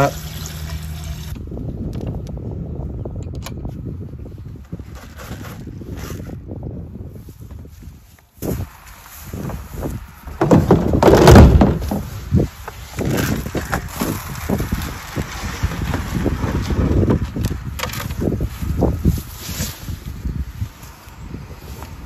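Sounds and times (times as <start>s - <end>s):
wind buffeting on microphone: 0.0s - 22.0s
plastic bucket knocking against hutch: 10.4s - 12.0s.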